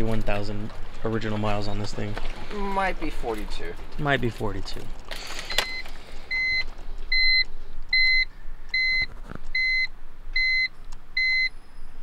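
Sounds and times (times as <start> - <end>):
dashboard warning beeps: 5.5 - 12.0.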